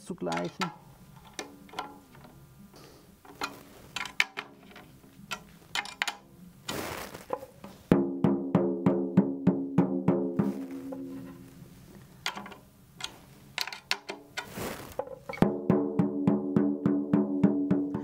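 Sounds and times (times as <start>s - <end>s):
brief rustle: 0.4s - 7.9s, 10.4s - 15.4s.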